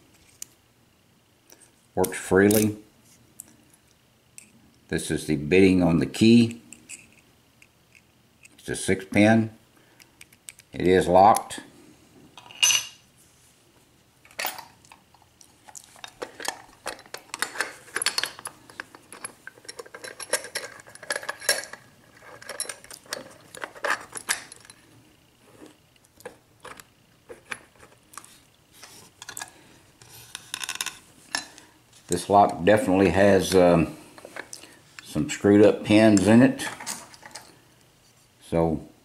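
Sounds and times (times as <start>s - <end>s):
metallic clicks and clinks: 14.3s - 24.9s.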